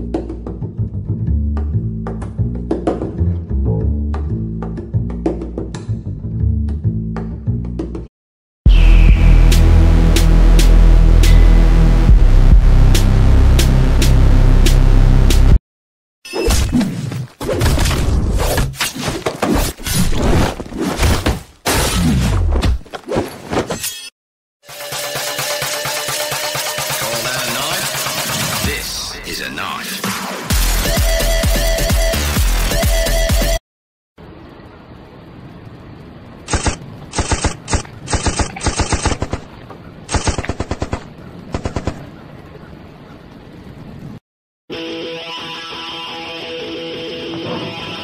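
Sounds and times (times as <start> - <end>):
heavy blows: 8.7 - 15.6
machine-gun fire bursts: 36.5 - 39.5, 40.1 - 42.0.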